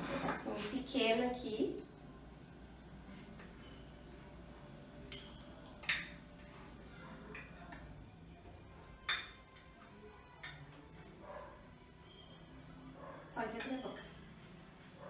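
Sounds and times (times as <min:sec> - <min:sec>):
cutlery clinking on plate: 0:05.1 - 0:06.2, 0:09.0 - 0:09.6.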